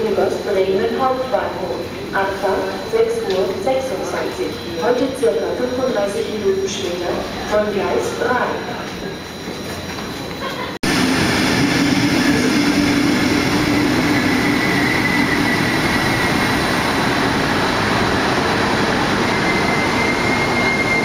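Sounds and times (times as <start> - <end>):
high wheel squeal: 13.5 - 16.7, 18.7 - 21.0.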